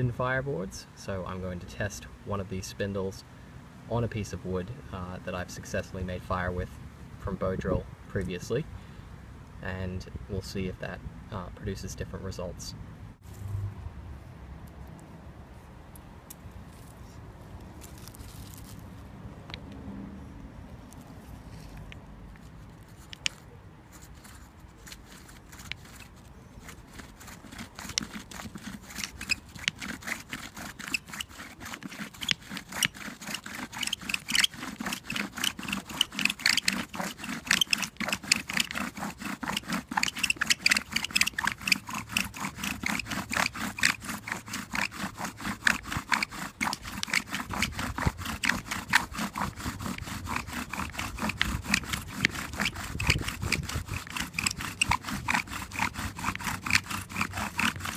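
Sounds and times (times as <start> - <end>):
bow drill scraping wood: 17.8 - 18.8, 20.9 - 57.9.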